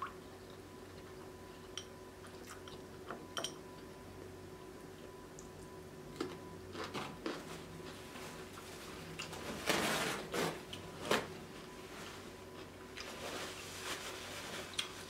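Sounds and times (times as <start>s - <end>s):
paper napkin rustling: 7.4s - 15.0s.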